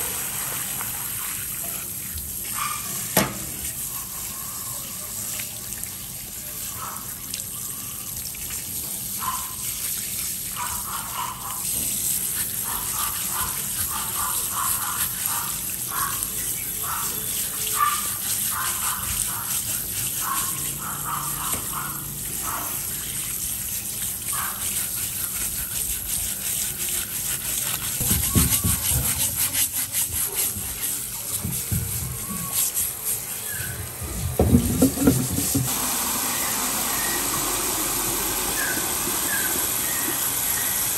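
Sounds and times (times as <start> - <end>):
tap water spraying: 0.0 - 40.9
brush scrubbing strokes: 8.9 - 40.9
dull knocks: 34.2 - 35.7.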